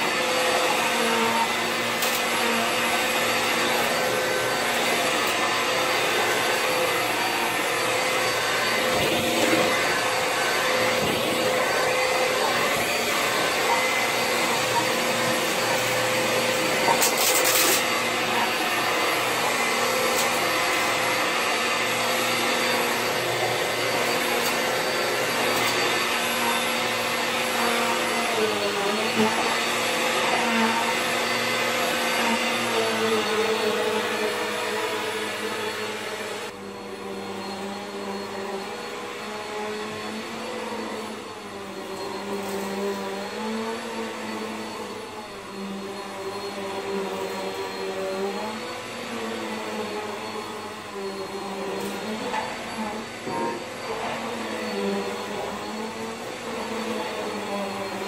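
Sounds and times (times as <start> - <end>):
vacuum cleaner running: 0.0 - 58.0.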